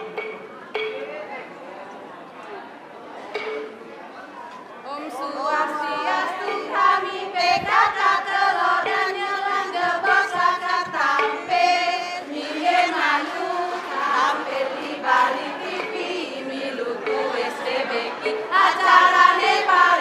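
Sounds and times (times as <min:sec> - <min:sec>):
women singing and chanting: 0:04.8 - 0:20.0.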